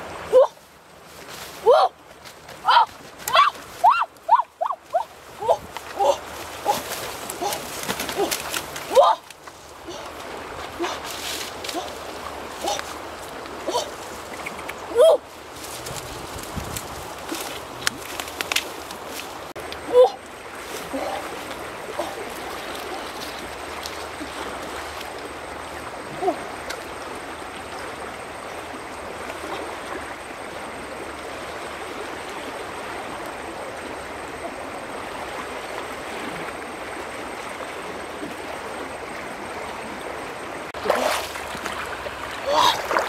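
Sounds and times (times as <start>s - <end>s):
fast-flowing river rushing: 18.8s - 43.0s.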